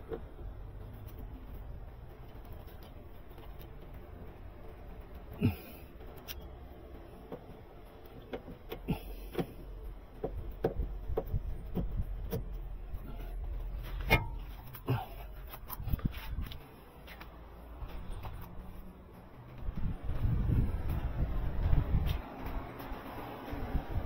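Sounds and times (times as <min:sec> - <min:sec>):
low rumble: 0:17.4 - 0:24.0.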